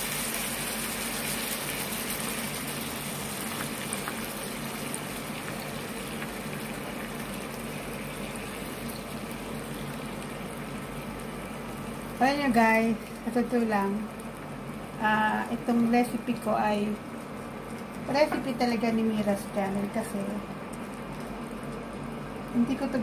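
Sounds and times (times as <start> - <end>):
pan sizzling: 0.0 - 23.0.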